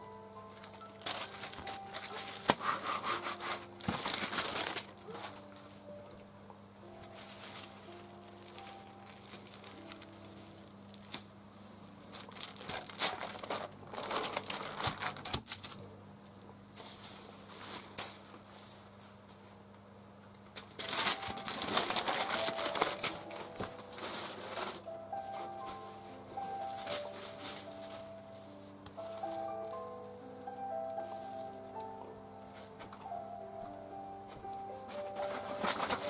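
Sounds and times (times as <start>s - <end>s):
paper crinkling and rustling: 0.4s - 6.2s, 6.8s - 15.9s, 16.8s - 19.2s, 20.5s - 30.3s, 34.3s - 36.0s.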